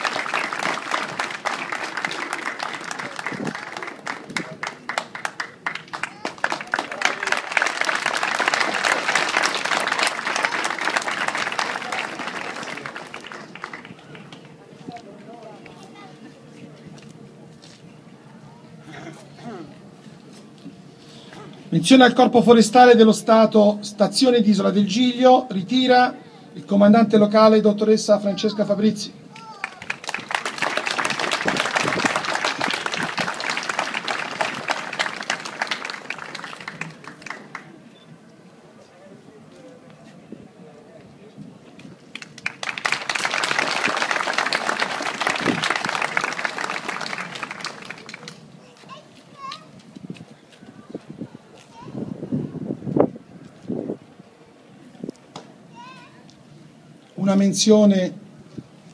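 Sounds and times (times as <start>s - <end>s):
crowd applauding: 0.0s - 14.6s, 29.4s - 37.8s, 42.1s - 48.4s.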